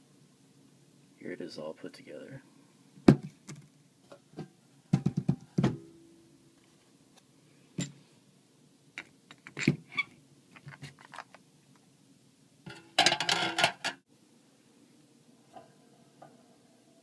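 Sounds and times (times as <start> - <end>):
clattering and scraping: 12.7 - 14.0.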